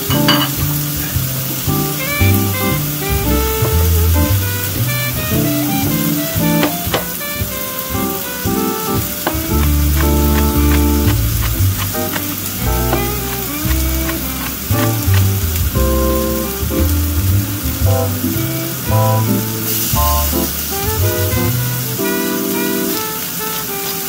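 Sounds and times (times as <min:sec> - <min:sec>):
background music with bass: 0:00.0 - 0:22.2
sausages sizzling in a pan: 0:06.0 - 0:24.0.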